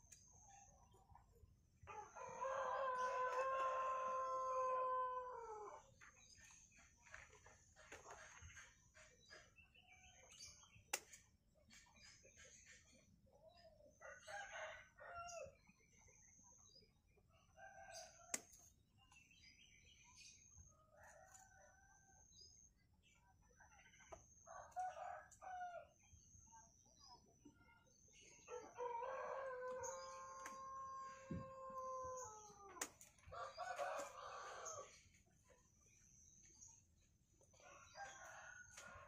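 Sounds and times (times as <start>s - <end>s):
rooster crowing: 1.9s - 5.8s.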